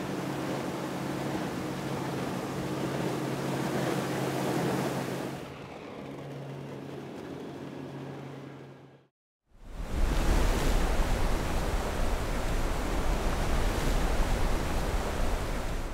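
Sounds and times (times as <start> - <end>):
water rushing: 0.0 - 5.4, 9.7 - 15.9
outboard engine running: 0.0 - 8.9
wind rushing: 9.7 - 15.9.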